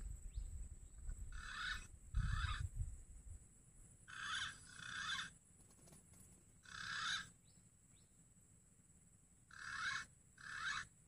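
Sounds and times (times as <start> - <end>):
green pigeon calls: 1.3 - 2.7, 4.1 - 5.4, 6.6 - 7.4, 9.5 - 11.0.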